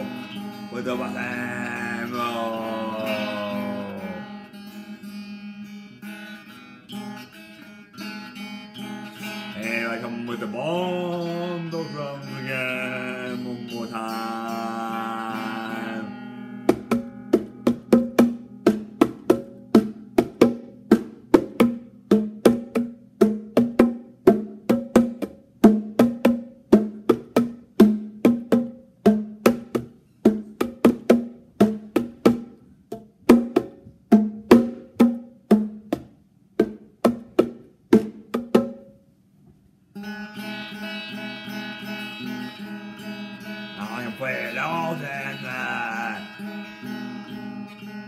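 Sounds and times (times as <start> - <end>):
bongo drums played by hand: 0.0 - 4.2, 15.4 - 39.0.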